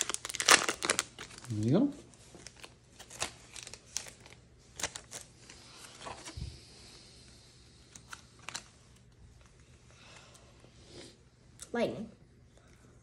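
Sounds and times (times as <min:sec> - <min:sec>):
foil wrapper crinkling: 0:00.0 - 0:06.3, 0:08.0 - 0:09.1.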